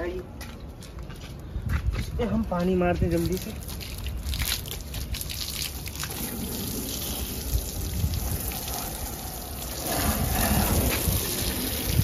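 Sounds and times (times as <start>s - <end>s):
hose water splashing on car: 3.2s - 12.0s.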